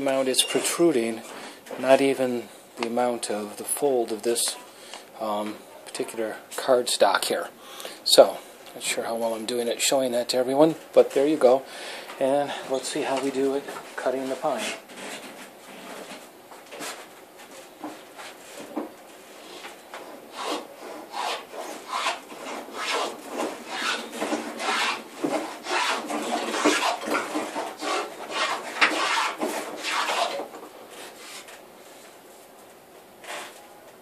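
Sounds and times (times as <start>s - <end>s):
plane shaving wood: 20.4s - 30.5s.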